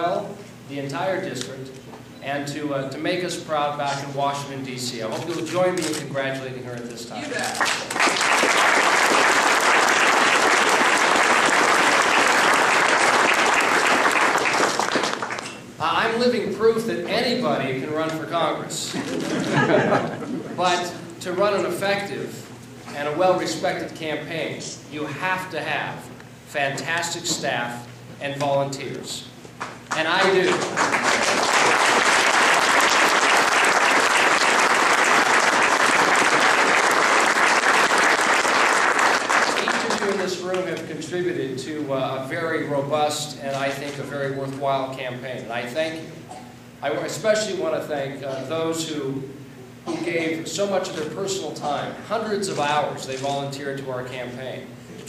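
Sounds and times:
crowd applauding: 7.4 - 15.5, 29.6 - 40.2.

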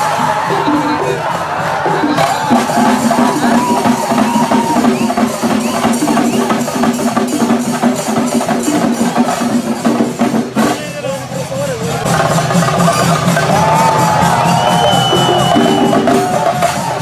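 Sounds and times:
held melodic line: 0.0 - 10.3
fast dense drumming: 0.0 - 17.0
large crowd: 0.0 - 17.0.

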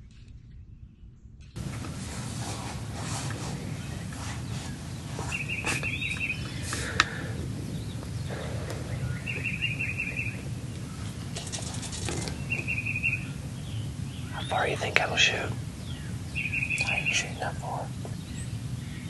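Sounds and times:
low background noise: 0.0 - 19.0
small bird trilling: 3.7 - 17.5.

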